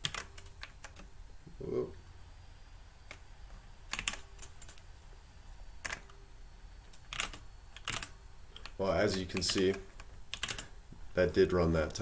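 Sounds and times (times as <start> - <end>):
computer keyboard keystrokes: 0.0 - 1.1, 3.9 - 4.8, 6.9 - 10.7.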